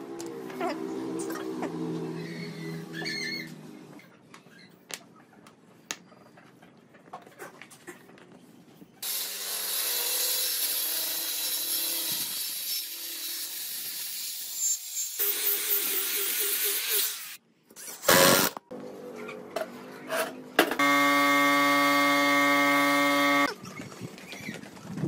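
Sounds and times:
circular saw cutting wood: 9.0s - 17.4s, 20.8s - 23.5s.

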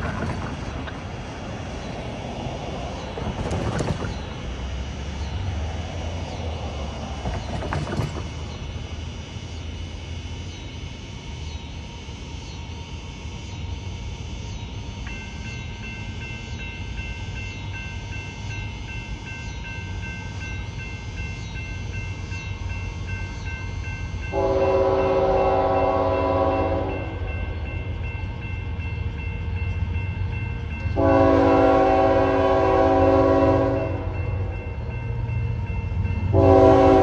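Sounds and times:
wheels clacking over rail joints: 0.0s - 5.3s, 6.3s - 8.7s
freight train rumbling past: 0.0s - 37.0s
faint high steady ringing: 8.3s - 37.0s.

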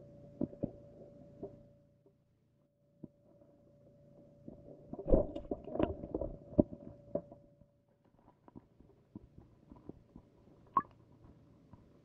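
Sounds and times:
faint steady hum: 0.0s - 12.0s
underwater knocks and clicks: 4.5s - 7.4s.

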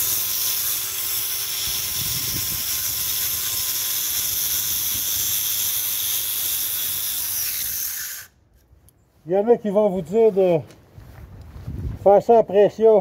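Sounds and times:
angle grinder grinding wall: 0.0s - 8.3s.

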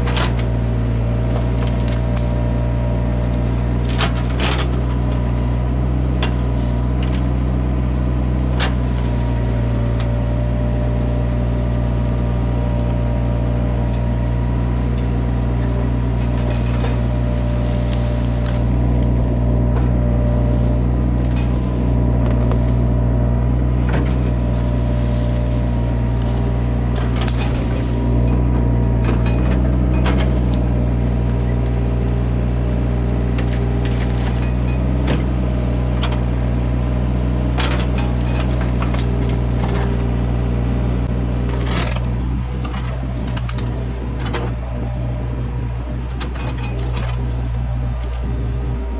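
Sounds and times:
excavator diesel engine and hydraulics: 0.0s - 48.9s
roots and wood cracking: 0.0s - 48.9s.

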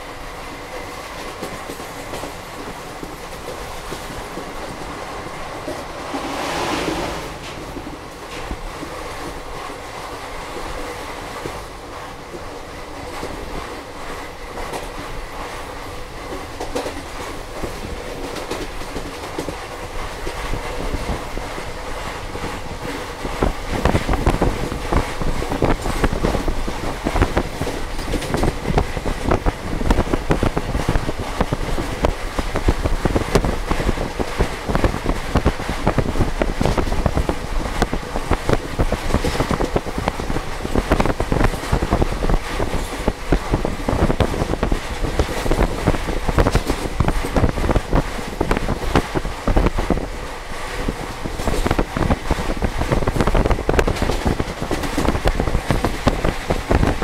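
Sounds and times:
train rushing noise: 0.0s - 57.0s
wheels clattering over rails: 1.2s - 9.8s.

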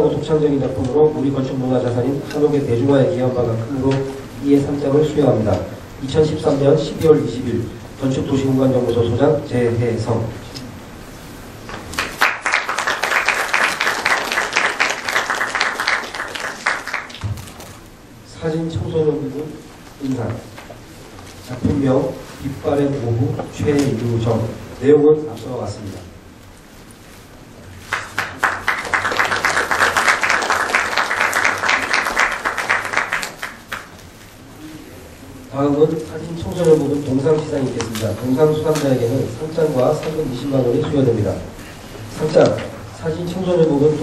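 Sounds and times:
audience applauding: 11.9s - 17.2s, 27.9s - 34.0s.

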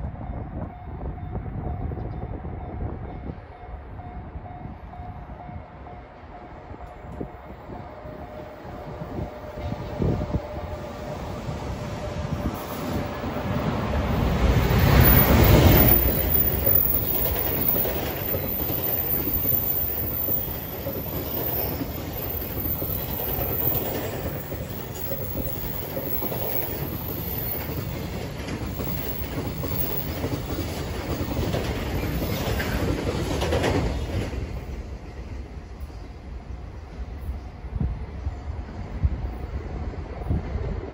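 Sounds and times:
electric locomotive passing: 0.0s - 40.9s
wagons rolling over rails: 14.5s - 34.6s.

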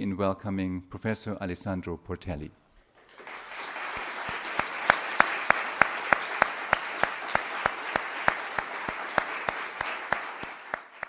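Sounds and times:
audience applauding: 3.0s - 11.0s
close sharp even claps: 3.0s - 11.0s.

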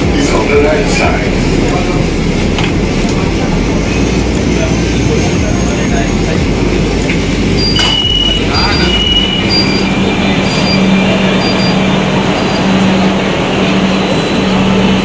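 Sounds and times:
station and train noise: 0.0s - 15.0s
short high beep: 7.6s - 11.8s
train door click: 7.8s - 8.3s.

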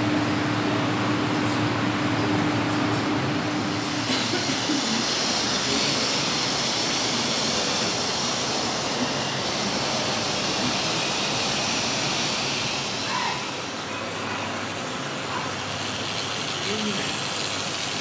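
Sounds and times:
model train rolling on track: 3.6s - 18.0s.

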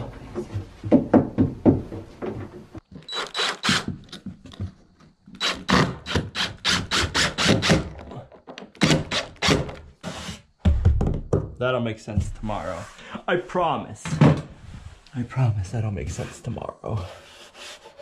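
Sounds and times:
impact driver driving screws: 3.0s - 4.0s
knocks on wooden board: 10.6s - 11.6s.

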